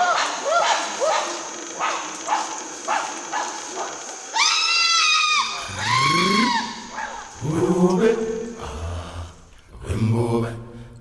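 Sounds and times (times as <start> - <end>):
chimpanzee screams: 0.0 - 7.4.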